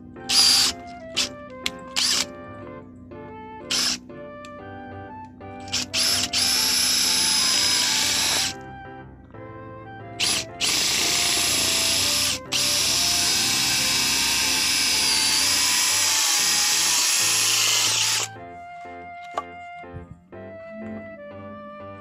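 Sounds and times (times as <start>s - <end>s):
cordless drill boring into wood: 0.3s - 1.3s, 1.9s - 2.3s, 3.7s - 4.0s, 5.6s - 8.6s, 10.2s - 18.4s.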